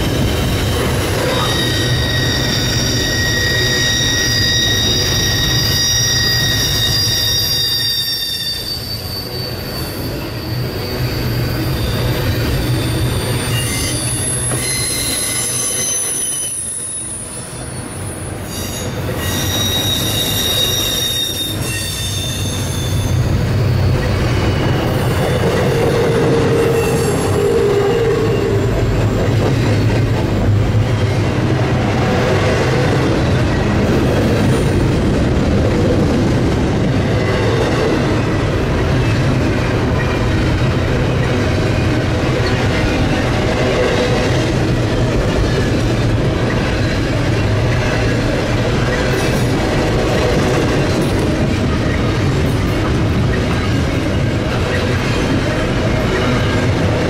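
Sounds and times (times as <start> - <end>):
train wheels squealing: 0.0 - 31.3
train cars rumbling and rattling: 0.0 - 57.0.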